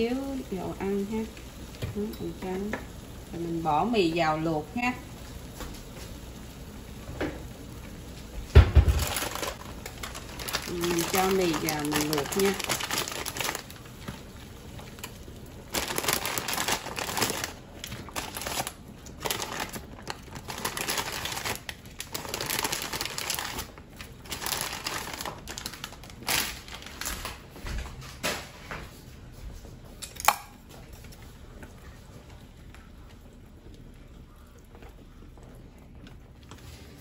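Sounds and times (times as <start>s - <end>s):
boiling water: 0.0s - 27.8s, 28.9s - 37.0s
plastic bag crinkling: 8.6s - 27.5s.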